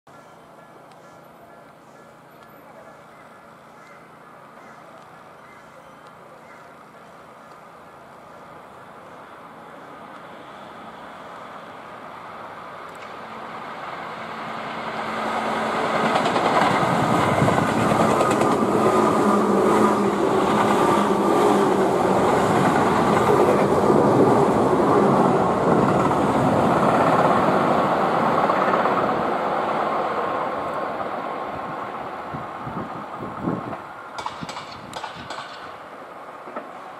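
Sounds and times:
electric train passing: 0:00.1 - 0:36.9
sharp clicks: 0:34.2 - 0:35.7.

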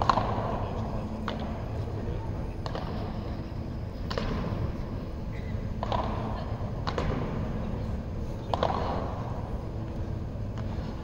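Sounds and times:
low rumble of hall noise: 0:00.0 - 0:11.0
padel ball struck by rackets: 0:08.5 - 0:09.1.

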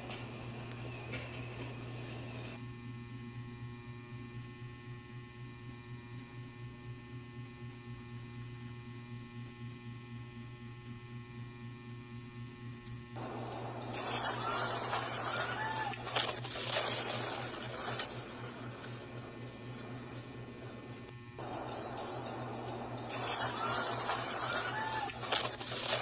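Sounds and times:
low electrical hum: 0:00.0 - 0:26.0
faint steady tones: 0:13.2 - 0:26.0.

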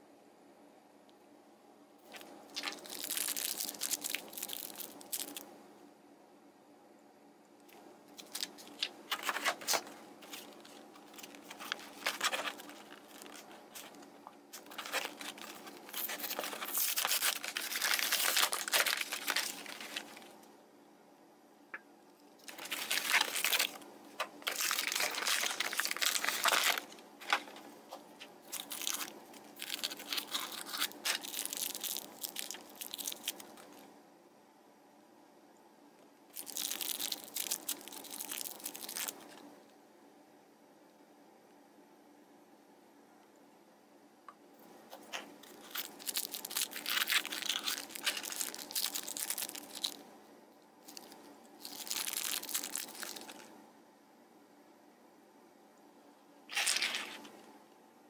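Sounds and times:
plastic packaging crinkling and tearing: 0:02.1 - 0:05.5, 0:08.2 - 0:20.4, 0:22.4 - 0:33.8, 0:36.3 - 0:39.4, 0:45.0 - 0:50.0, 0:50.8 - 0:53.5, 0:56.5 - 0:57.4.

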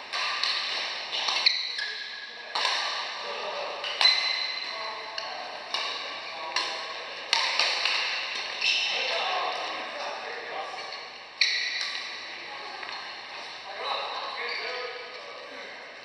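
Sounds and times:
rackets striking shuttlecock: 0:00.1 - 0:01.4, 0:02.5 - 0:03.1, 0:05.2 - 0:08.6.

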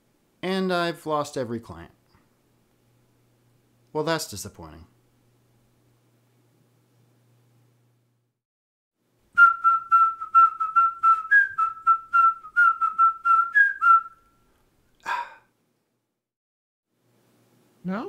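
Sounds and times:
whistled tune: 0:09.4 - 0:14.5.

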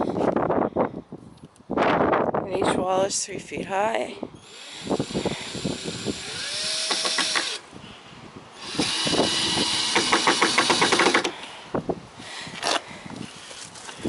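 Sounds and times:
drill clutch ratcheting clicks: 0:04.4 - 0:07.6, 0:08.6 - 0:11.4
cordless drill driving screws: 0:04.4 - 0:07.7, 0:08.6 - 0:11.4.

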